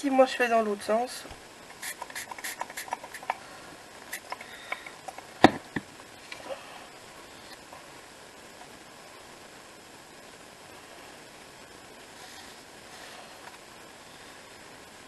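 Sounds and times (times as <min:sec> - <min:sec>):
hands tapping and rubbing: 0:01.8 - 0:03.4.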